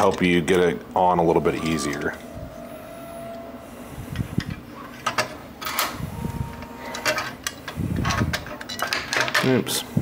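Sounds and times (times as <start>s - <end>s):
sheet metal clicks and knocks: 6.9s - 9.6s.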